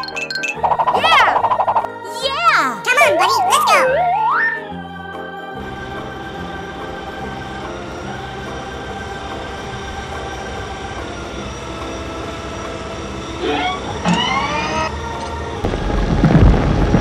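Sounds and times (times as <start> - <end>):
rising pitch swoops: 3.8 - 4.7
rough engine rumble: 5.6 - 17.0.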